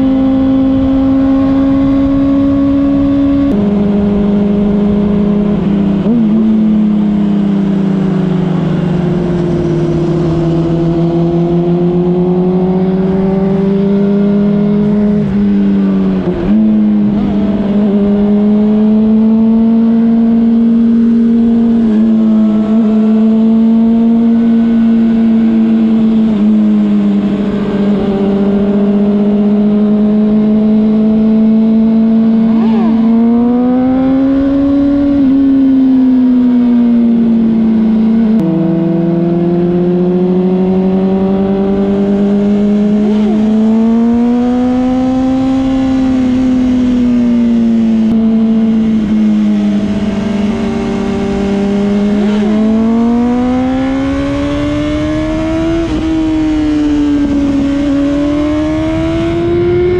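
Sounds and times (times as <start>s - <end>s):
wind noise: 0.0s - 38.6s, 40.0s - 59.9s
motorcycle engine at speed: 0.0s - 59.9s
road noise: 0.0s - 59.9s.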